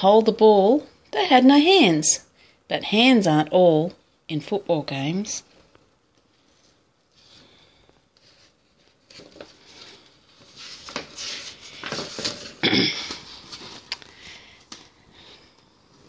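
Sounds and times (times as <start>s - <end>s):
book page turning: 8.2s - 16.0s.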